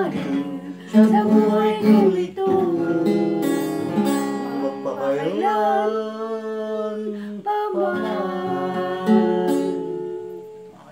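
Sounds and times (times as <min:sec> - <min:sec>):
acoustic guitar strumming: 0:00.0 - 0:10.9
man and woman singing: 0:00.0 - 0:10.9.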